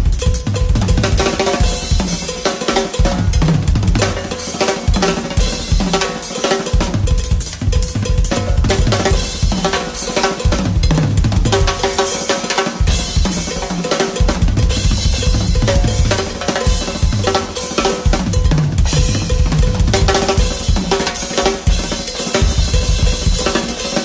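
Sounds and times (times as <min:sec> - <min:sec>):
bass drum: 0:00.0 - 0:02.2, 0:03.0 - 0:04.3, 0:06.8 - 0:09.8, 0:10.5 - 0:11.9, 0:14.2 - 0:23.5
cymbals: 0:00.0 - 0:24.0.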